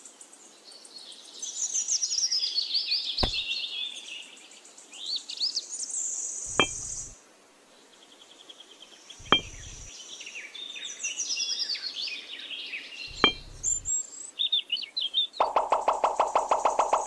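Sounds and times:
birds chirping: 3.2 - 3.5, 6.5 - 7.2, 9.2 - 9.9, 13.1 - 14.0
miniature bricks clicking on sand: 15.4 - 17.0.

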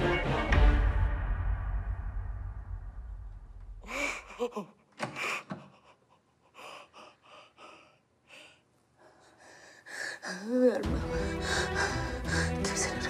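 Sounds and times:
low background music: 0.0 - 2.8, 10.5 - 13.0
woman sobbing: 3.8 - 8.0, 9.9 - 13.0.

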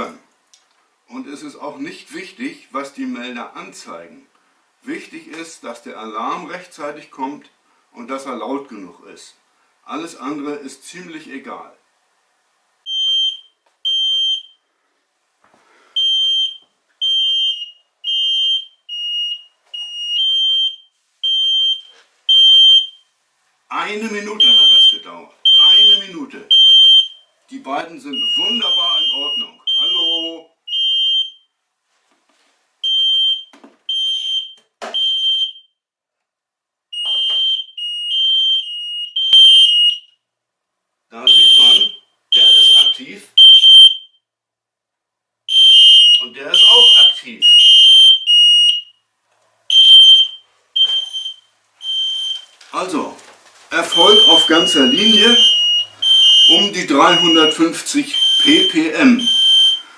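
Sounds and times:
carbon monoxide alarms beeping: 12.8 - 14.7, 15.9 - 23.1, 24.4 - 27.3, 28.0 - 31.6, 32.8 - 35.8, 36.9 - 40.3, 41.2 - 44.3, 45.5 - 49.1, 49.7 - 52.6, 53.8 - 59.9
alarms beeping high-pitched: 28.1 - 31.4, 41.3 - 44.2, 45.5 - 48.9, 49.7 - 52.4, 53.8 - 59.9.

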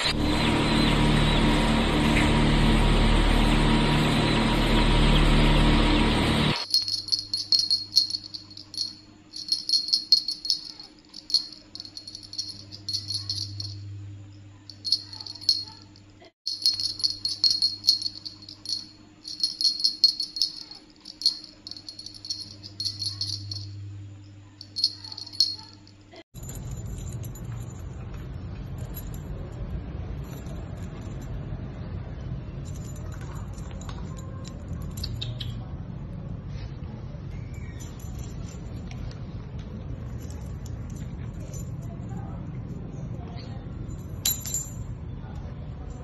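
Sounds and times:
high jingling rattle: 6.6 - 13.9, 14.7 - 23.8, 24.6 - 28.0
steady low hum: 6.6 - 30.4.

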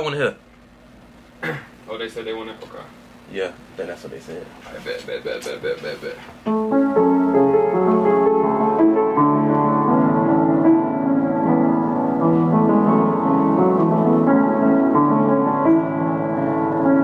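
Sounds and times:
slow piano chords and melody: 6.4 - 17.0.

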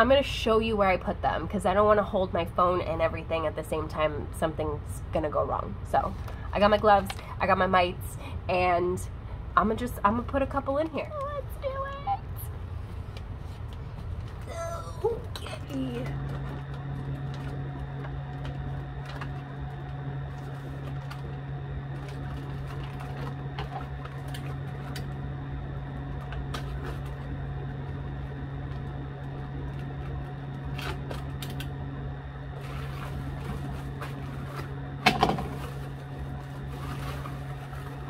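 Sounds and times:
low machine hum: 0.0 - 38.0.

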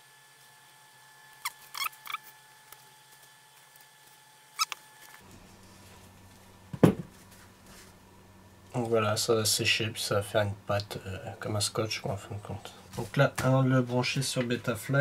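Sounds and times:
jar squeaks and clicks: 1.4 - 2.3, 4.6 - 4.8.

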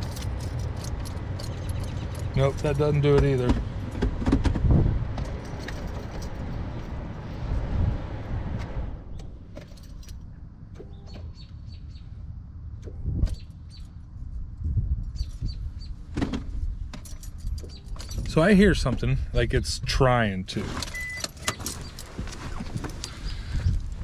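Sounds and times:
keys rattling: 0.0 - 4.0, 5.3 - 7.0, 9.6 - 10.3, 17.0 - 18.3, 21.0 - 23.2.

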